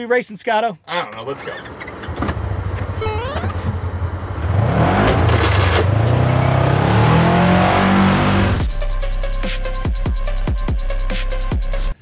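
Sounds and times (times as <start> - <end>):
engine idling and revving: 1.8 - 9.0.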